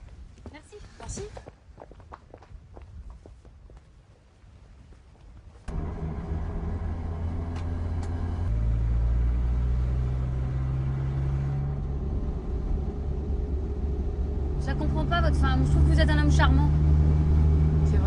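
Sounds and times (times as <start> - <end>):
car engine and road rumble: 5.5 - 18.0.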